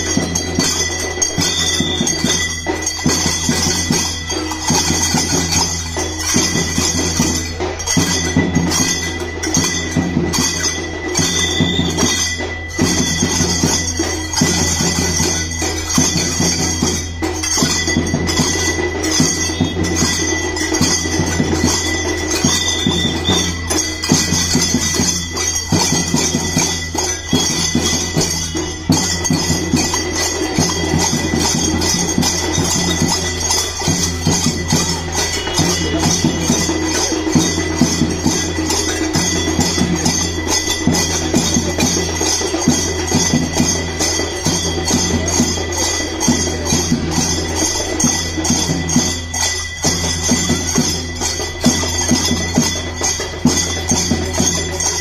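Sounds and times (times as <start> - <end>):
brass hand cymbals clashing: 0.0 - 55.0.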